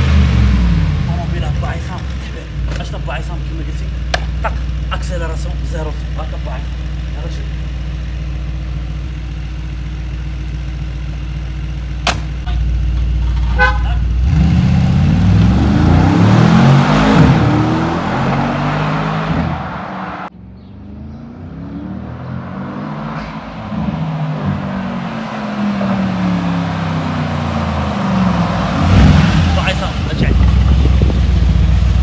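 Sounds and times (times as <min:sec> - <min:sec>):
car engine idling and revving: 0:00.0 - 0:32.0
car door thudding shut: 0:12.0 - 0:12.6.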